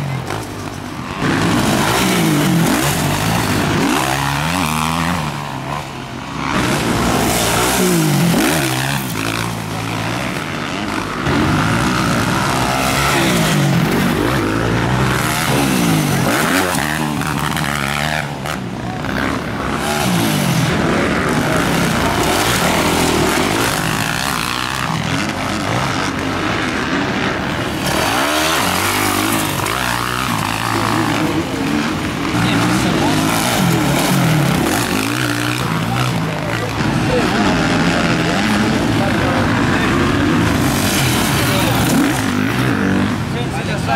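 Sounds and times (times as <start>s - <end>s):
dirt bikes racing past: 0.0s - 43.9s.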